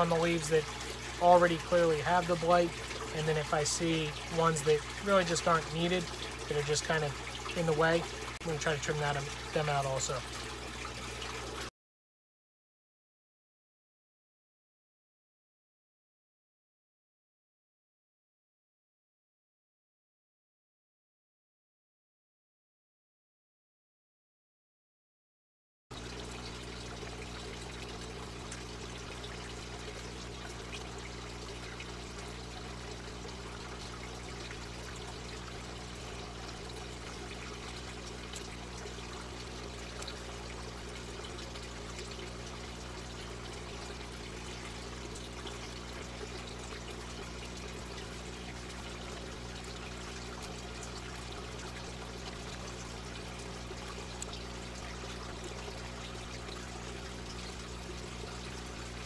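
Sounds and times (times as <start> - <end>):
low machine hum: 0.0 - 11.7, 26.0 - 59.0
water trickling and splashing: 0.0 - 11.7, 25.9 - 59.0.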